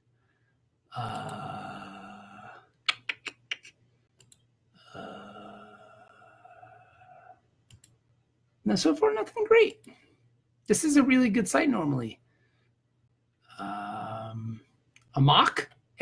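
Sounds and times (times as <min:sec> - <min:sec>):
man making drawn-out wordless sounds: 0:00.9 - 0:03.2, 0:13.5 - 0:14.7
computer clicks: 0:02.9 - 0:04.5, 0:07.7 - 0:08.0.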